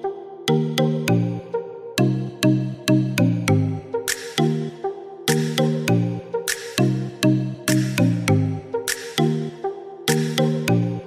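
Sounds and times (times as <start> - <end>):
electronic music with synth chords: 0.0 - 11.0.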